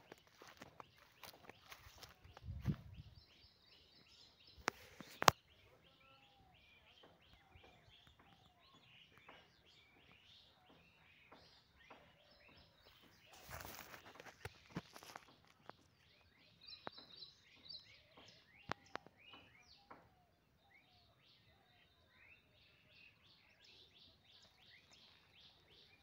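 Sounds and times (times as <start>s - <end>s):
grass rustling: 0.0s - 3.0s, 13.3s - 15.8s
small birds chirping: 0.0s - 26.0s.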